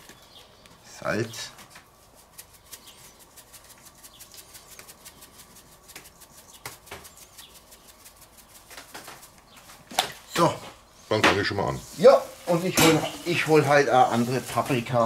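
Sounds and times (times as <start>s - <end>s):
salt shaker rattling: 2.0s - 9.4s.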